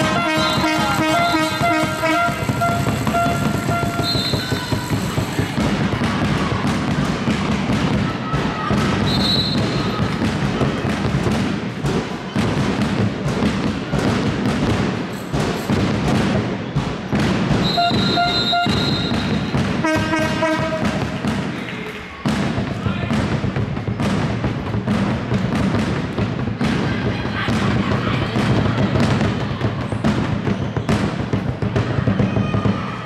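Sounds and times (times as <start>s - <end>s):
horn blast: 0.0s - 4.8s, 17.6s - 21.3s
crowd clapping and thudding: 0.0s - 33.0s
shrill whistle-like tones: 0.1s - 5.2s, 9.0s - 9.9s, 17.6s - 19.6s.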